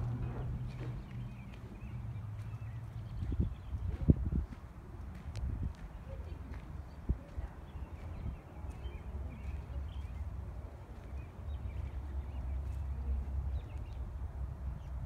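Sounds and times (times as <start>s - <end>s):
wind rumble on microphone: 0.0s - 10.5s.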